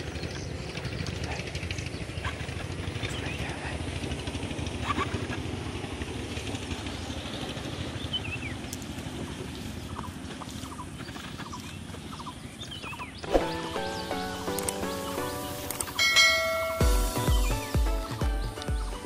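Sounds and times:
low motor rumble: 0.0 - 19.0
bird chirps: 9.5 - 18.9.

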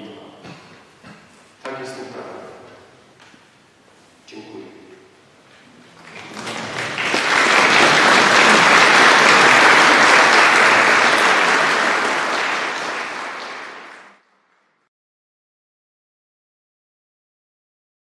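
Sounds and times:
audience applauding: 6.0 - 14.2.

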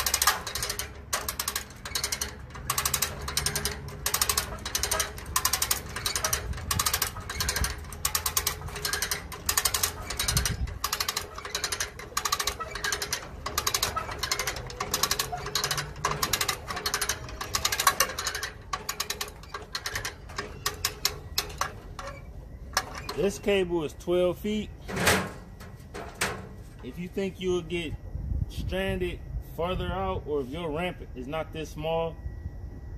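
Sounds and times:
hand winch ratchet clicking: 0.0 - 23.5.

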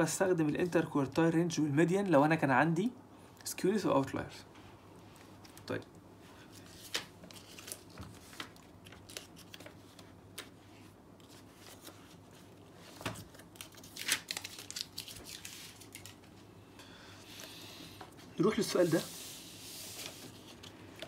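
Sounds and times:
paper pages rustling: 6.4 - 16.4, 18.4 - 21.0.

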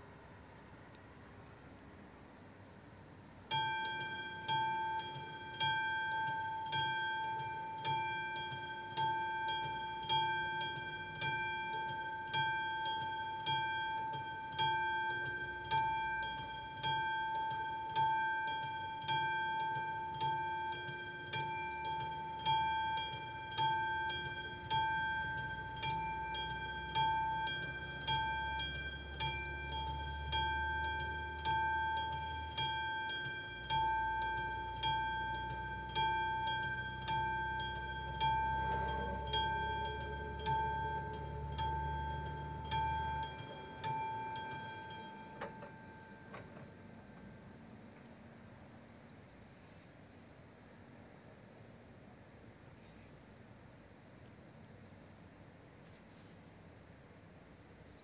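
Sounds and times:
level crossing bell ringing: 3.5 - 47.6.

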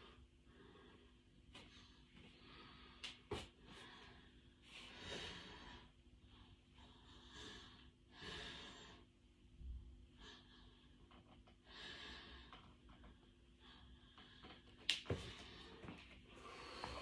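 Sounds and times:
person breathing with exertion: 13.6 - 17.0.

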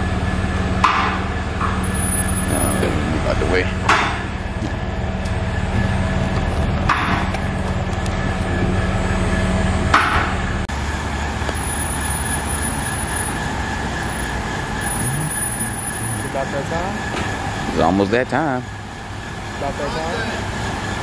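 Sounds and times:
car engine idling: 0.0 - 21.0
sharp knocks: 3.8 - 4.7, 6.8 - 7.3.

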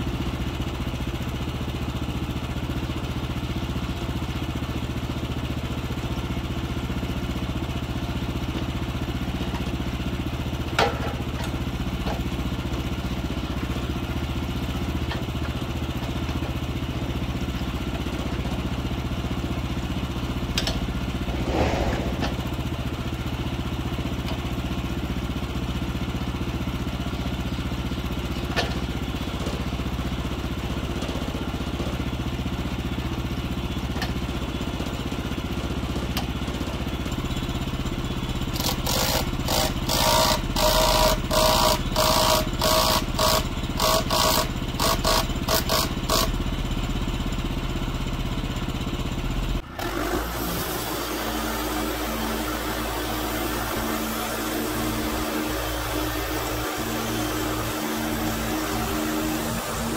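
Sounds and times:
gas engine running: 0.0 - 59.9
short clatter: 20.6 - 23.3.

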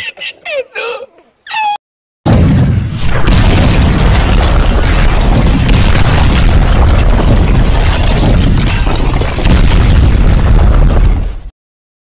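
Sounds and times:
rumbling explosion with crackling: 2.3 - 11.5.

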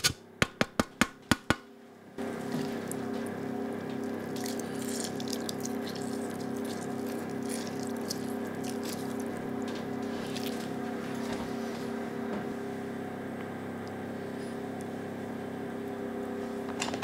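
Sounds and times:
steady low hum: 1.7 - 17.0
juice dripping onto fish: 2.7 - 9.8.

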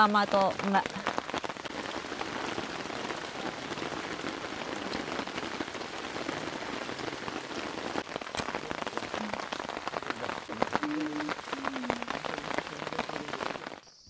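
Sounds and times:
rain on a tent flysheet: 0.0 - 13.9.

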